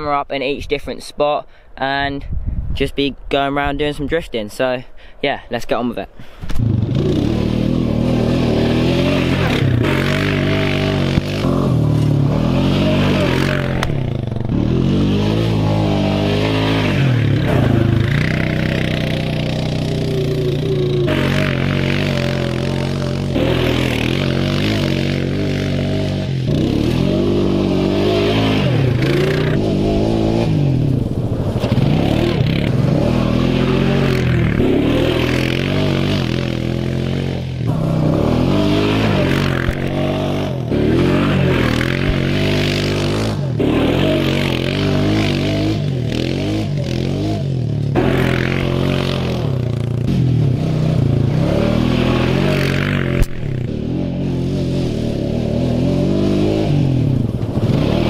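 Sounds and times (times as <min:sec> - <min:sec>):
tyres tearing through grass: 0:06.4 - 0:47.3
quad bike engine revving: 0:06.5 - 0:58.0.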